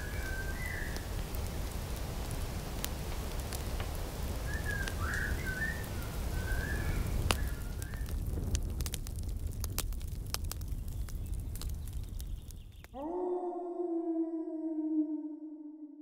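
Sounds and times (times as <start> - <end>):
whistled bird calls: 0.0 - 1.0, 4.4 - 8.1
campfire crackling and popping: 0.0 - 13.0.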